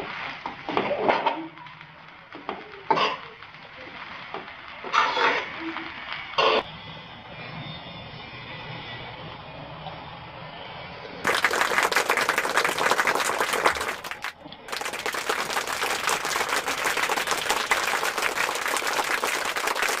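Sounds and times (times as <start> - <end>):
crowd applause: 11.2 - 20.0.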